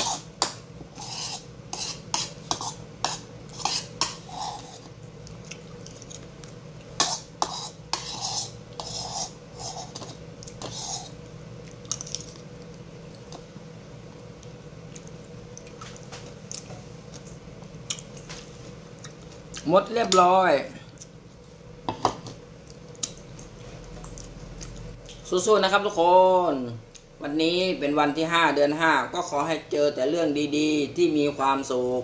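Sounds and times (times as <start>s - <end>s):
metal spoon scraping ceramic bowl: 0.0s - 0.3s, 0.9s - 4.9s, 7.0s - 11.2s.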